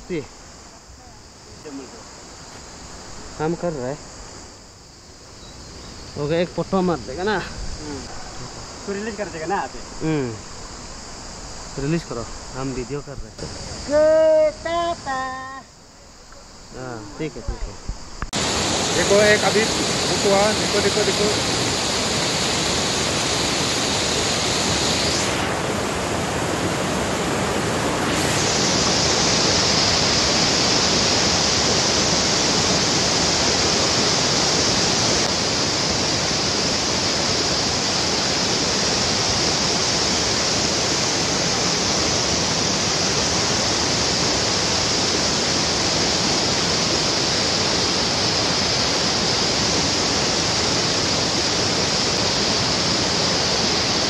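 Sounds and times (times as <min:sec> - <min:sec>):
river rushing over rocks: 0:18.4 - 0:54.0.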